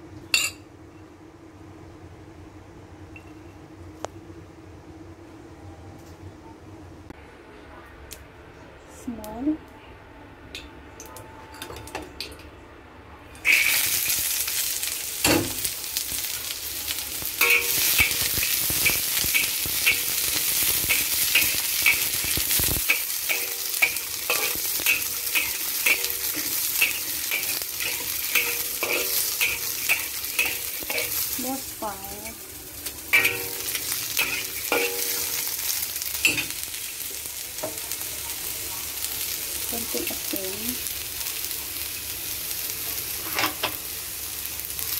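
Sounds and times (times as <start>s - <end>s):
beans sizzling in hot oil: 13.4s - 44.9s
spatula scraping a wok: 17.4s - 31.4s.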